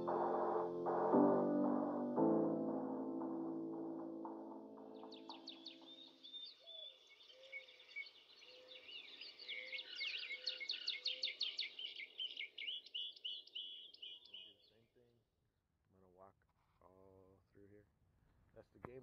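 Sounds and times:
music track: 0:00.0 - 0:06.2
birds chirping and singing: 0:04.6 - 0:14.7.

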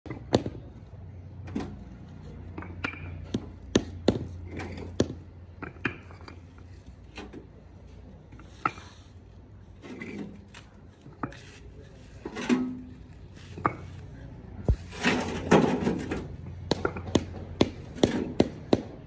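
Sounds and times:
paving blocks knocking: 0:00.1 - 0:00.9, 0:02.4 - 0:06.4, 0:12.2 - 0:19.0.

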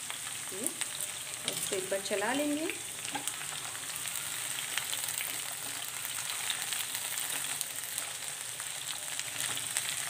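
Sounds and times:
vegetables sizzling in oil: 0:00.0 - 0:10.0.

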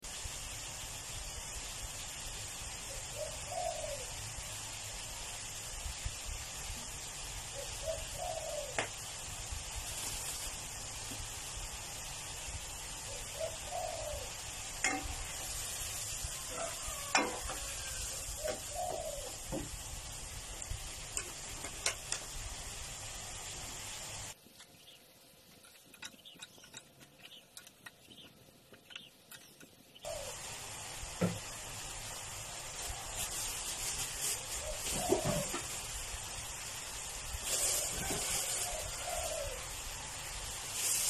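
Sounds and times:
sizzling bubbling in a wok: 0:00.0 - 0:24.4, 0:30.0 - 0:41.0
dove cooing: 0:02.9 - 0:04.2, 0:07.5 - 0:09.0, 0:13.1 - 0:15.0, 0:16.4 - 0:19.6, 0:30.1 - 0:30.5, 0:34.2 - 0:36.2, 0:37.0 - 0:39.8.

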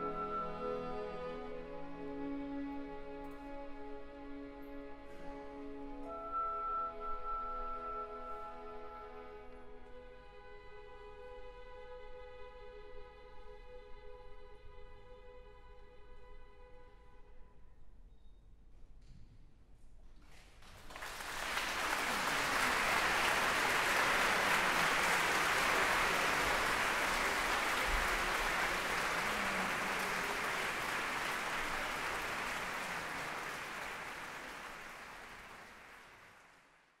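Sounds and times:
audience applauding: 0:20.6 - 0:37.0.

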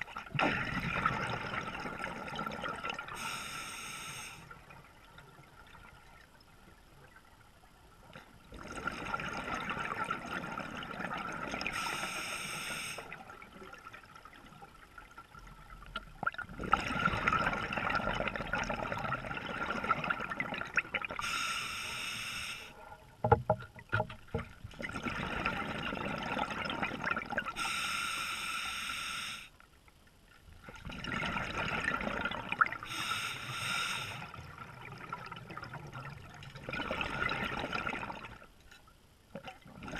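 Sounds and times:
regulator breaths hissing: 0:03.2 - 0:04.4, 0:11.8 - 0:13.1, 0:21.2 - 0:22.7, 0:27.6 - 0:29.5, 0:32.9 - 0:34.3.

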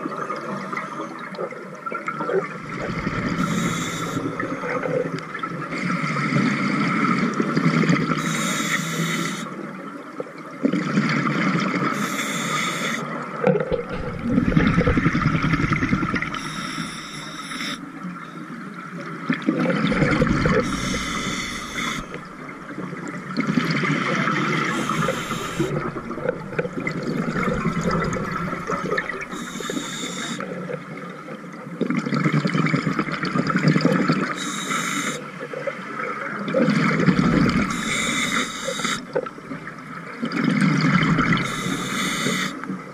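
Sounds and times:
bubbling exhaled air: 0:02.6 - 0:06.2, 0:13.7 - 0:17.8, 0:19.5 - 0:30.4
scuba regulator inhalation hiss: 0:03.3 - 0:04.6, 0:08.2 - 0:09.5, 0:12.0 - 0:13.1, 0:16.3 - 0:17.8, 0:20.6 - 0:22.3, 0:24.6 - 0:26.4, 0:27.4 - 0:30.4, 0:34.4 - 0:35.3, 0:37.7 - 0:39.1, 0:41.3 - 0:42.6.

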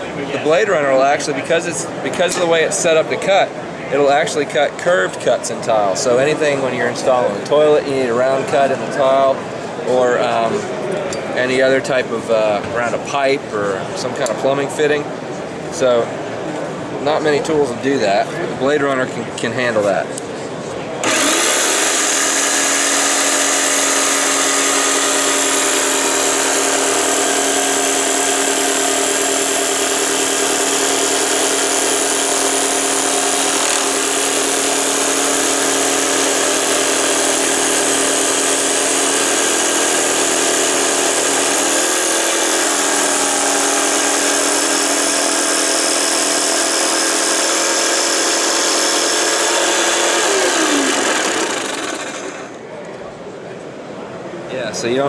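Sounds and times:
saw cutting ceramic tile: 0:21.0 - 0:52.6.

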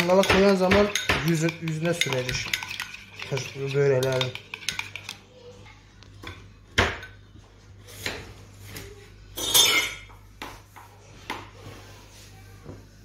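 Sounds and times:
spoon and dishes clinking: 0:00.0 - 0:05.2, 0:06.2 - 0:07.2, 0:09.4 - 0:10.3.

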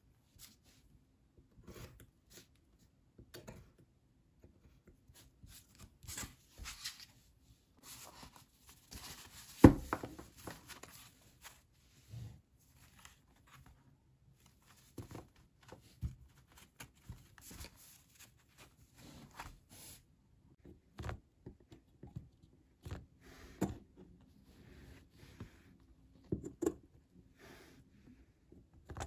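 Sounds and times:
paper rustling: 0:05.5 - 0:07.2, 0:07.8 - 0:11.7, 0:14.4 - 0:19.9.

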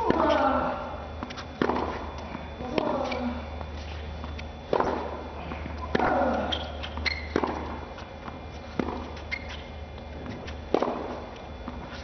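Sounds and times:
shoe squeaks: 0:01.2 - 0:04.7, 0:05.7 - 0:12.0
racket striking tennis ball: 0:01.3 - 0:02.1, 0:04.7 - 0:05.2, 0:05.9 - 0:07.8, 0:08.7 - 0:09.2, 0:10.6 - 0:11.3.

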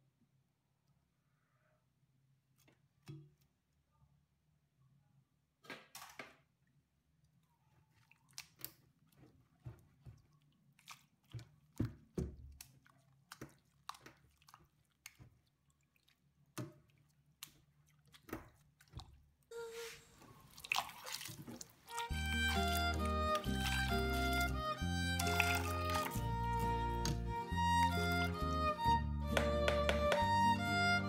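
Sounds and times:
wet drips and squelches: 0:06.7 - 0:19.5, 0:20.2 - 0:28.6
background music: 0:21.9 - 0:31.0.

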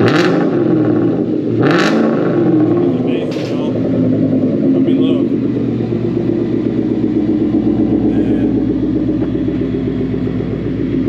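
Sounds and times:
car engine idling burble: 0:00.0 - 0:11.0.

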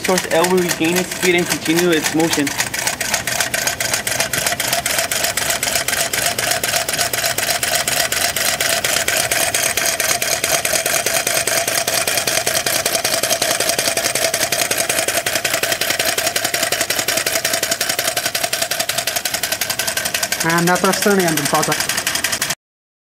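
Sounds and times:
small engine linkage clicking rapidly: 0:00.0 - 0:22.6.

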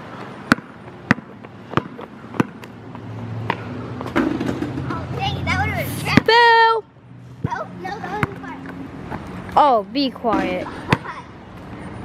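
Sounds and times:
basketball bouncing on concrete: 0:00.1 - 0:05.0, 0:06.1 - 0:06.4, 0:07.4 - 0:09.3, 0:10.3 - 0:11.2.

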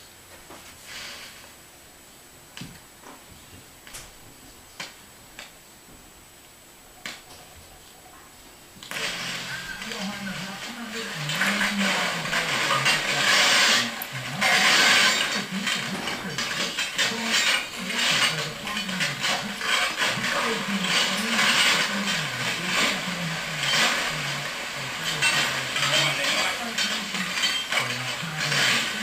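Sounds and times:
shovels scraping through coals: 0:08.9 - 0:29.0.

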